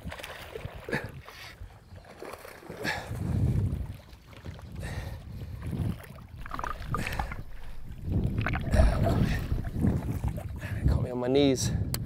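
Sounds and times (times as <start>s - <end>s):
water splashing: 0.0s - 10.8s
wind rumbling on microphone: 2.8s - 12.0s.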